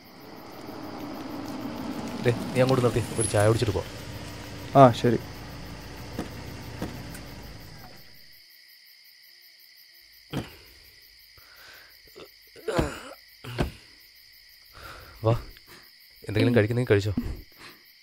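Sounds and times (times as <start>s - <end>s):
car doors opening and shutting: 0.0s - 8.3s
car engine running: 0.0s - 8.3s
crickets chirping: 0.0s - 18.0s.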